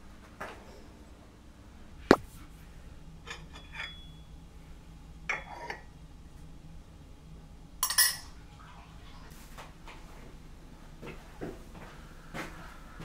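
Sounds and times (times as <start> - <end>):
low steady hum: 0.0 - 13.0
tableware clattering: 3.3 - 4.1, 5.3 - 5.9, 7.8 - 8.3
tableware clinking: 3.3 - 4.2, 5.3 - 5.9, 7.8 - 8.3.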